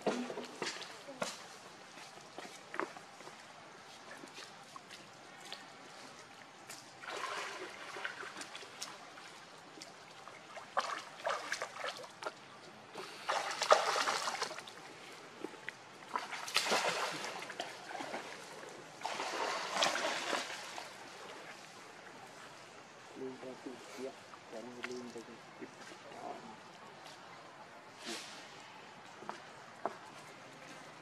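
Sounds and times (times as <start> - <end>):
water splashing and sloshing: 0.0 - 23.1.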